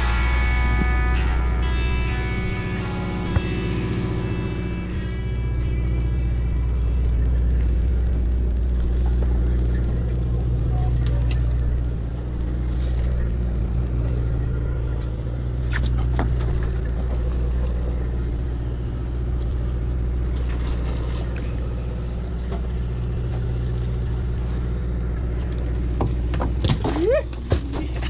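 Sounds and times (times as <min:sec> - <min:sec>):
low drone of diesel machinery: 0:00.0 - 0:28.0.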